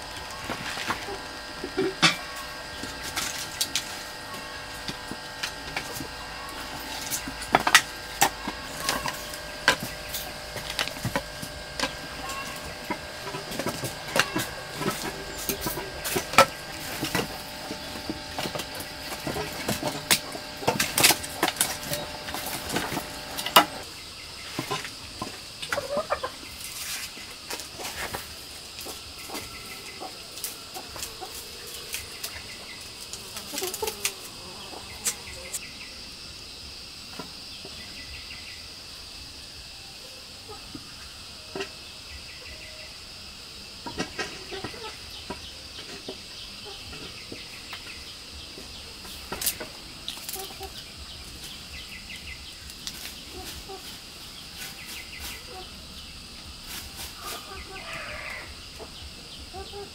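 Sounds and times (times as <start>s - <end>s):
firewood sticks clattering: 0.0s - 23.8s
chickens clucking: 0.0s - 35.7s, 43.8s - 59.9s.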